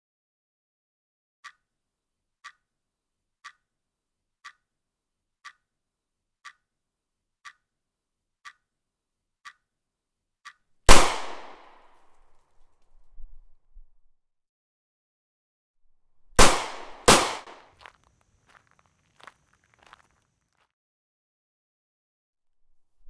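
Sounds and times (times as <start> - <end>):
clock ticking: 1.4 - 1.7, 2.4 - 2.7, 3.4 - 3.7, 4.4 - 4.7, 5.4 - 5.7, 6.4 - 6.7, 7.4 - 7.6, 8.4 - 8.7, 9.4 - 9.6
loud gunshot: 10.9 - 11.9, 16.4 - 17.6.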